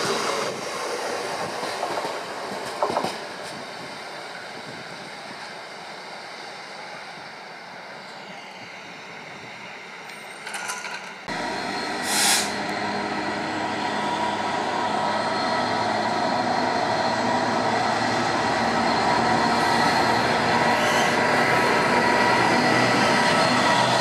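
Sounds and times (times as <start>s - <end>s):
diesel locomotive engine: 0.0s - 24.0s
train wheel noise: 0.0s - 24.0s
short sharp hiss: 12.0s - 12.6s.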